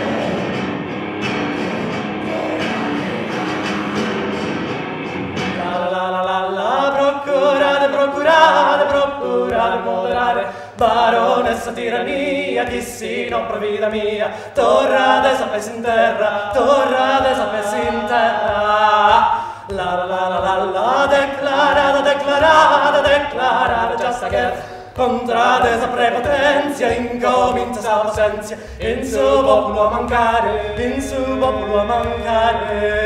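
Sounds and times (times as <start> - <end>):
two men singing unaccompanied: 0.0 - 0.8, 2.2 - 4.4, 5.5 - 33.0.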